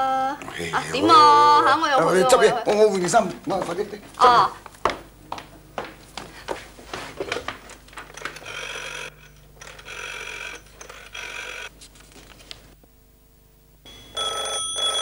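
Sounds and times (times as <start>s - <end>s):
rotary dial whirring: 7.3s - 12.7s
telephone bell ringing: 8.4s - 11.7s, 13.9s - 15.0s.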